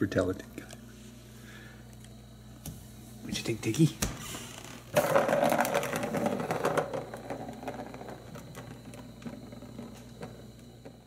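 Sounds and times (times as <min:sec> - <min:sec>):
plastic ball clattering on plastic track: 0:04.9 - 0:11.0.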